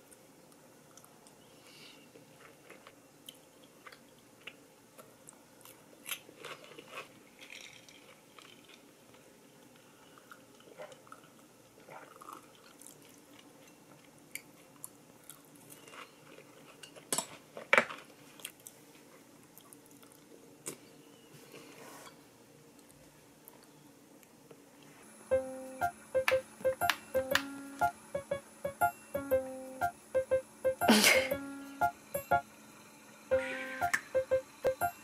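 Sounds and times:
chewing and crunching food: 2.1s - 20.9s.

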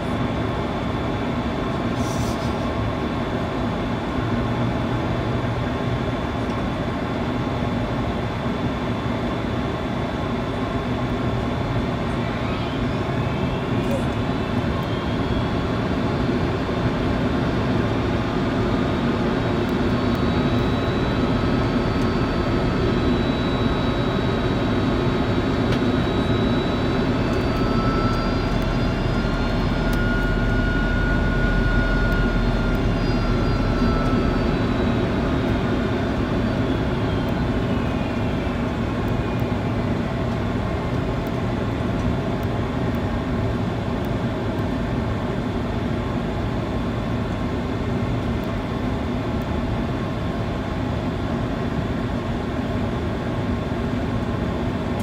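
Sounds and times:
airliner engines and rushing air: 0.0s - 55.0s
thin engine whine: 11.6s - 40.9s.

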